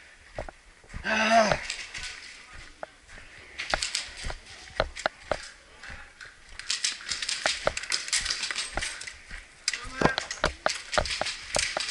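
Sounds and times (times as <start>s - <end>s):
sharp clicks and knocks: 3.6s - 5.6s, 6.2s - 11.9s.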